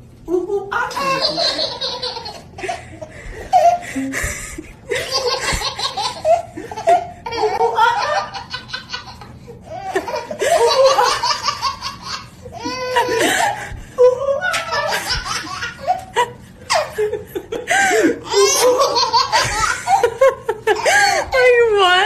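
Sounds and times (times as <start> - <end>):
baby laughing: 0.9 - 2.8, 4.9 - 13.6, 14.4 - 17.3, 18.0 - 21.3.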